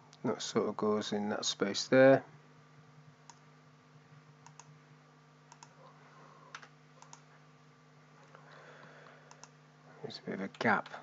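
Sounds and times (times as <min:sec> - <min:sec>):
low steady hum: 0:00.0 - 0:11.0
faint computer clicks: 0:04.4 - 0:04.7, 0:05.5 - 0:05.8, 0:06.5 - 0:07.3, 0:09.3 - 0:09.6.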